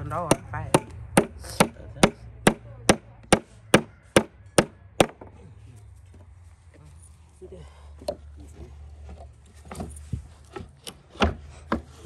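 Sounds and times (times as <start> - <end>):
tool striking wood: 0.0 - 5.4, 10.5 - 11.9.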